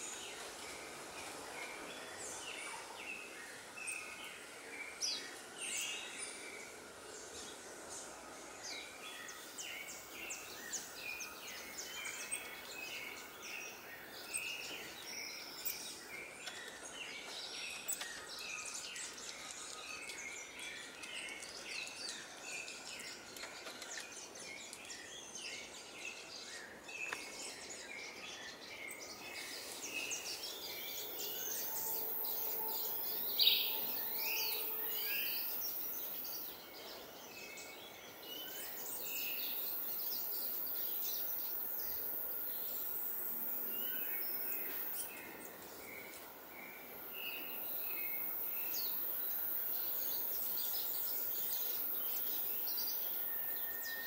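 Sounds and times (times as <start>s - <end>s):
birds chirping: 8.6s - 43.0s
very high-pitched hiss: 24.2s - 54.0s.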